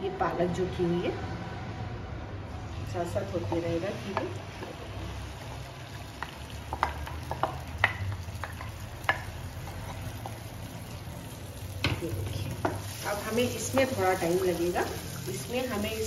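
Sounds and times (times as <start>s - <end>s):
light sizzle from pan: 2.5s - 16.0s
spatula tapping bowl and pan: 6.2s - 10.4s, 11.8s - 12.9s.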